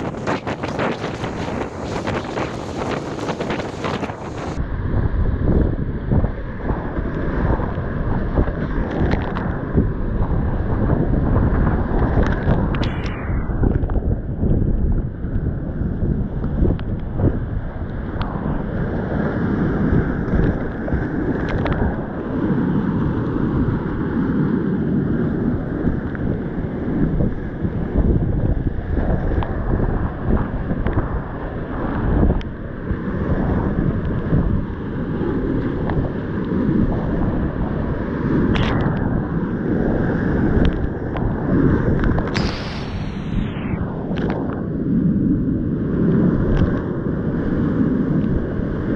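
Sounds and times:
wind rushing over microphone: 0.0 - 48.9.

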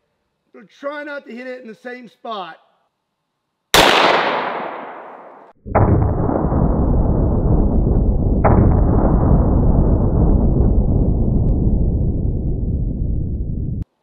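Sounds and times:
pistol shot with echo: 3.8 - 6.2
loud rush of low noise: 5.7 - 13.8.

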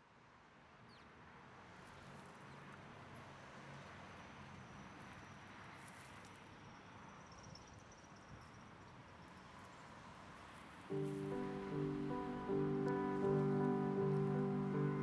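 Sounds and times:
steady low hiss: 10.9 - 15.0.

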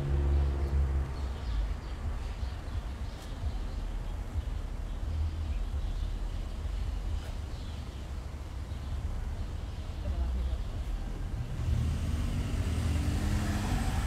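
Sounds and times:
traffic rumble: 0.0 - 14.0.

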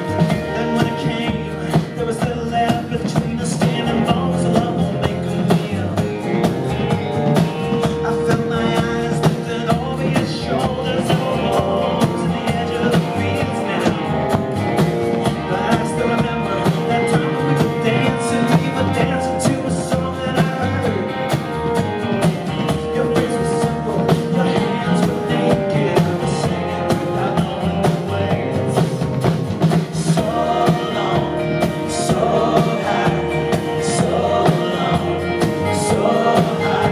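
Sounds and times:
man singing: 0.0 - 6.5, 7.4 - 36.9
electric guitar: 0.0 - 36.9
upright bass: 0.0 - 36.9.

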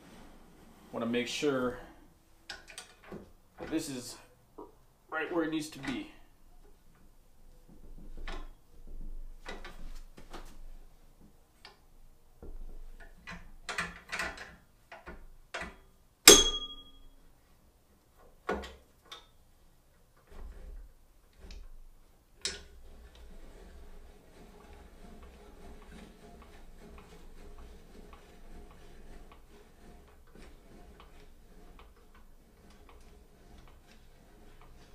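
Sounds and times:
metal clicks and rattles: 2.5 - 3.7
sharp ringing metal clank: 16.3 - 17.2.

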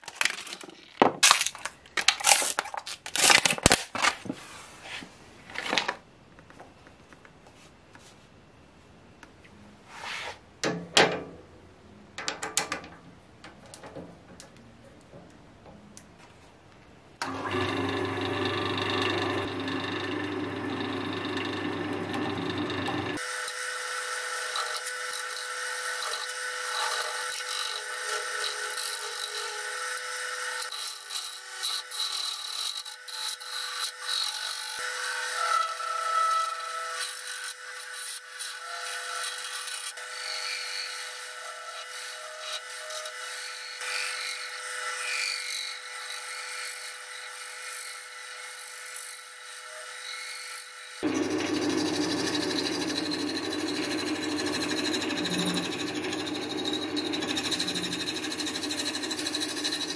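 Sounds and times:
wood lathe motor whine: 17.2 - 33.4, 51.0 - 59.9
turning tool cutting resin: 17.2 - 59.9.

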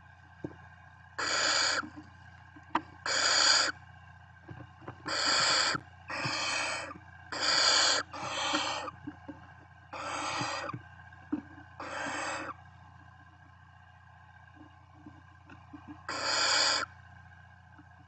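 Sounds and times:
steady low hum: 0.0 - 18.0
owl chicks hissing calls: 1.2 - 1.9, 3.0 - 3.8, 5.1 - 9.0, 9.9 - 10.8, 11.8 - 12.6, 16.1 - 16.9.

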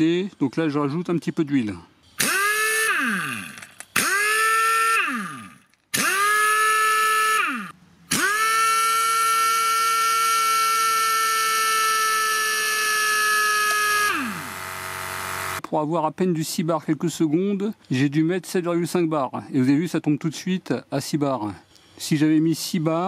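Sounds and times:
pneumatic impact wrench whining: 2.2 - 15.6.

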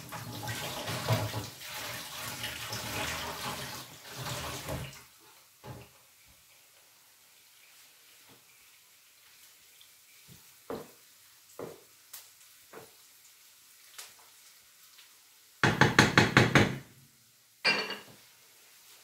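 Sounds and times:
knocking: 15.6 - 16.8.

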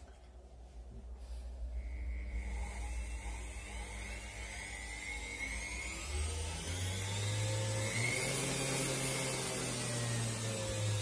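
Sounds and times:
motor whining: 1.8 - 11.0.

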